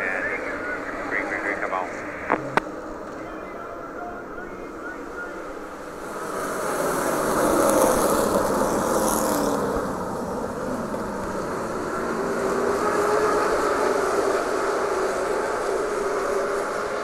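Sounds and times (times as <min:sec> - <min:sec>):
race cars accelerating: 0:03.8 - 0:17.0.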